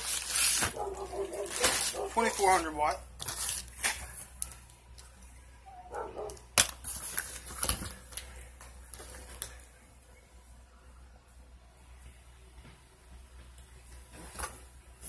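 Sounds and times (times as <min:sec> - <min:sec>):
cardboard packaging rustling: 0:00.0 - 0:04.6, 0:06.7 - 0:09.6.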